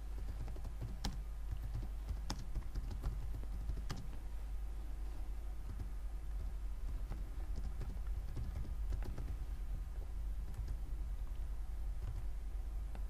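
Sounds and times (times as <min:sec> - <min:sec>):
keyboard typing: 0:00.0 - 0:04.2, 0:05.6 - 0:09.4, 0:10.4 - 0:10.9
steady low hum: 0:00.0 - 0:13.0.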